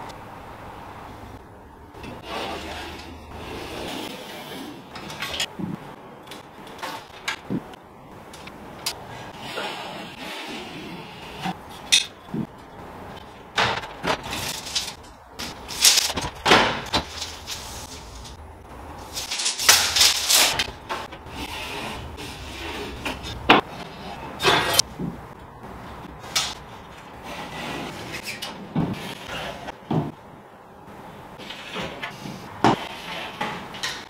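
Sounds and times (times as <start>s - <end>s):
scraping against ceiling: 2.0s - 5.8s, 26.1s - 30.2s.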